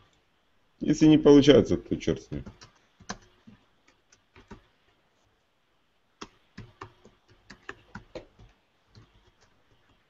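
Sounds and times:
computer keyboard typing: 0:02.3 - 0:04.8, 0:06.2 - 0:10.0.

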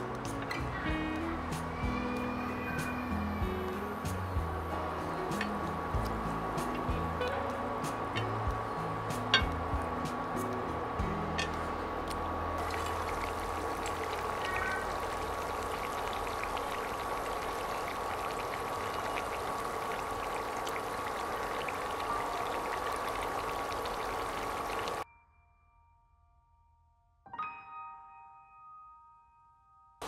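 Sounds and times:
fries sizzling in hot oil: 0:00.0 - 0:25.0.

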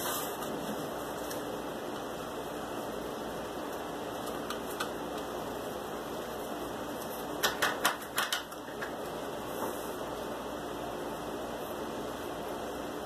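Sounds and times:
room noise hiss: 0:00.0 - 0:13.0
small objects clicking on workbench: 0:07.4 - 0:09.0.

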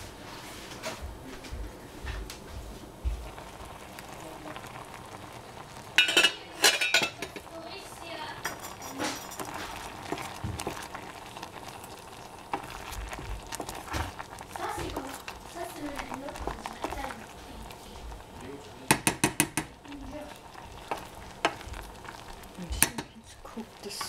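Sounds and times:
sauce simmering in a pan: 0:02.4 - 0:24.0
wooden spoon scraping a pan: 0:08.4 - 0:10.9, 0:19.5 - 0:24.0.

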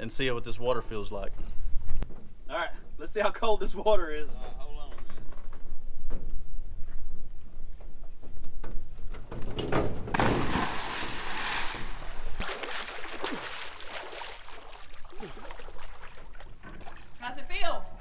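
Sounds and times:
person splashing into water: 0:10.1 - 0:17.2
churning water: 0:10.1 - 0:17.4
water sloshing: 0:10.1 - 0:17.6.

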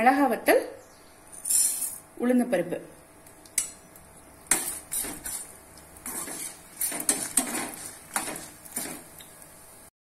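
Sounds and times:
metal spoon scraping a pan: 0:04.5 - 0:09.1.

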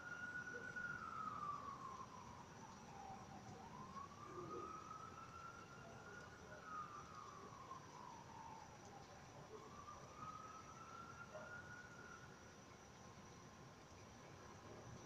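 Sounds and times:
faint siren wailing: 0:00.0 - 0:15.0.

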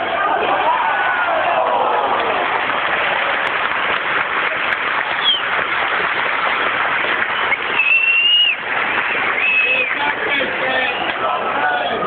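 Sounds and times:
stadium crowd din: 0:00.0 - 0:12.0
shrill whistle: 0:05.2 - 0:05.4, 0:07.5 - 0:08.6, 0:09.4 - 0:09.9.

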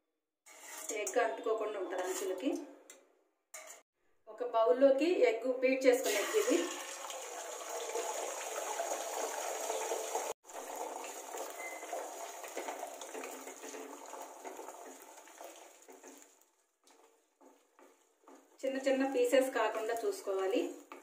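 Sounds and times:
egg sizzling in hot oil: 0:06.0 - 0:21.0.

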